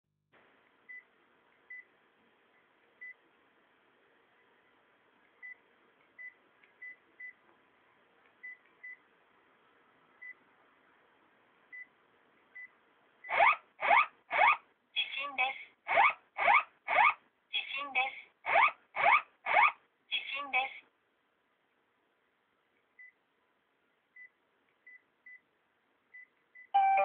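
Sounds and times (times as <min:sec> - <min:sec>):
phone key beeps: 0:26.7 - 0:27.0.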